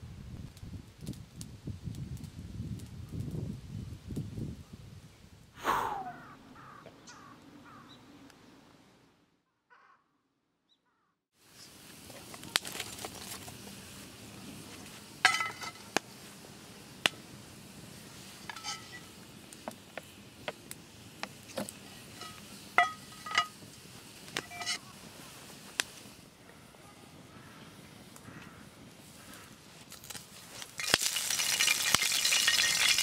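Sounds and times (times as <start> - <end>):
campfire crackling and popping: 0.4 - 4.4, 11.7 - 26.4, 27.2 - 33.0
birds calling: 6.0 - 8.2.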